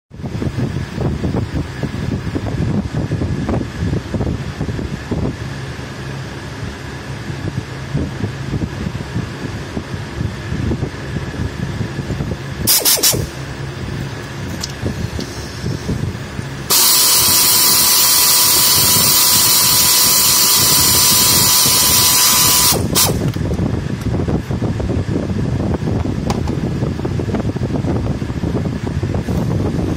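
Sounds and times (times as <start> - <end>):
compressed air blast: 12.6 - 13.4, 15.0 - 23.4
air hissing with thin whistle: 16.7 - 23.2.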